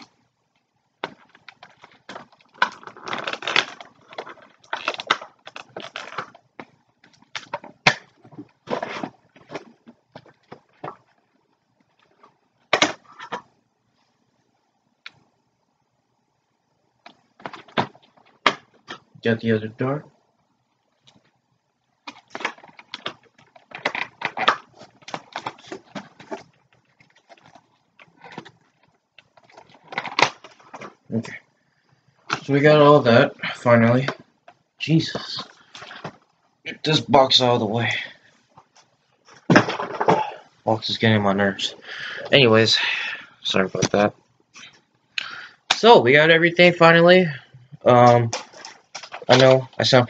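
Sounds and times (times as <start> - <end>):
cardboard packaging rustling and tearing: 1.0 - 11.2, 22.0 - 31.3, 48.0 - 50.0.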